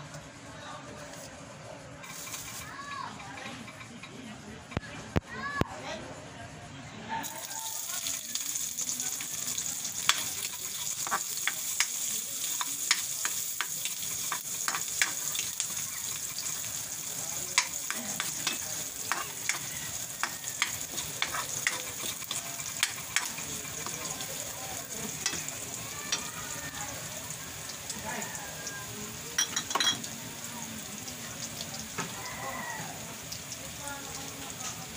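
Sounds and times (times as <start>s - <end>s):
metal spatula stirring in wok: 2.0s - 2.6s, 9.8s - 25.7s
garlic sizzling in oil: 2.0s - 3.2s, 7.2s - 34.9s.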